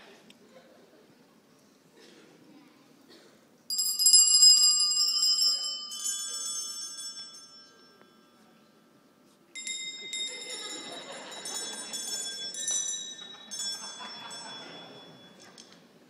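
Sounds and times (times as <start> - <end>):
bells ringing: 3.7 - 16.0.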